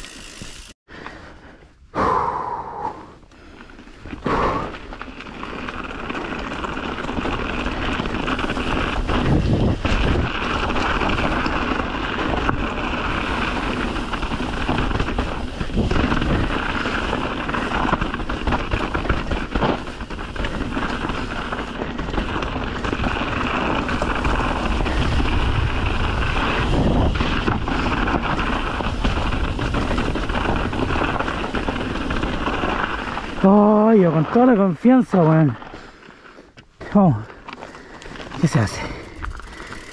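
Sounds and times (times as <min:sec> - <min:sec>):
bike tyre noise on trail: 0:00.0 - 0:39.9
bike knocking on rocks: 0:05.2 - 0:25.8
wind buffeting microphone: 0:07.7 - 0:33.4.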